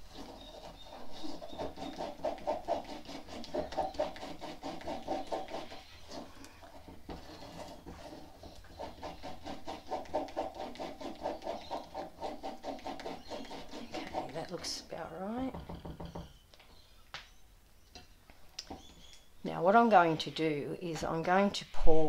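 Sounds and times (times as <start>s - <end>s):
spatula scraping cement mix: 0.0s - 15.0s.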